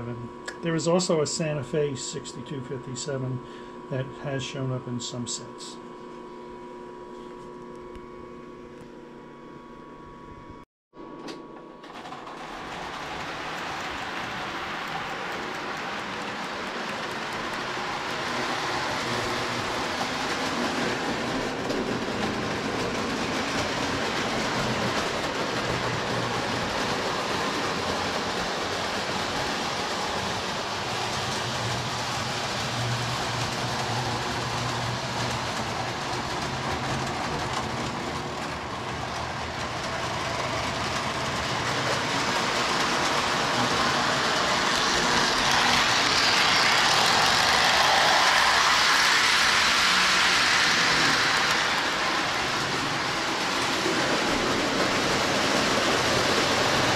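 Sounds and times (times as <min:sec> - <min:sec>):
toy train wheels rumbling: 0:11.8 - 0:56.9.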